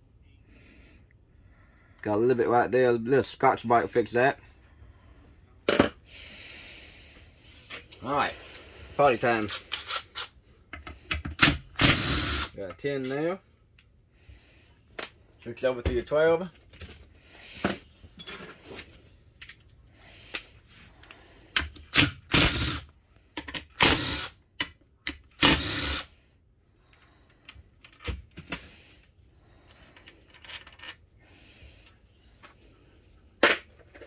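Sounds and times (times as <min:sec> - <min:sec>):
metal clinks of bolts and tools: 0:19.4 - 0:19.7.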